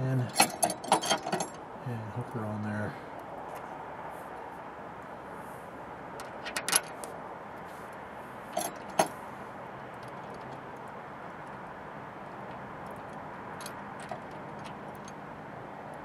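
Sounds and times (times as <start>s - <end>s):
metal bracket clinking: 0.0s - 1.6s, 6.2s - 7.1s, 8.5s - 9.2s, 12.2s - 15.3s.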